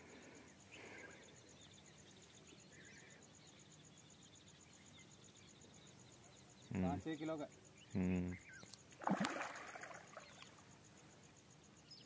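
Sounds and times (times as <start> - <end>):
faint chirp: 0.0 - 8.9, 9.6 - 12.0.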